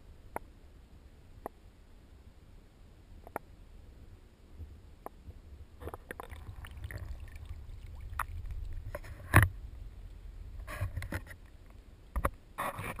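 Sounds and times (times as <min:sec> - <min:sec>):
water sloshing: 0:05.8 - 0:10.1.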